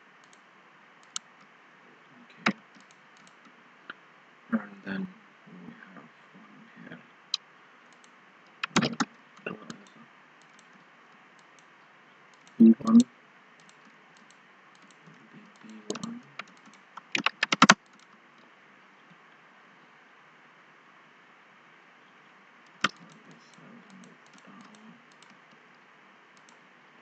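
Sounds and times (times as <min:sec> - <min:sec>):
keyboard keystrokes: 0:07.9 - 0:09.1, 0:13.6 - 0:18.1.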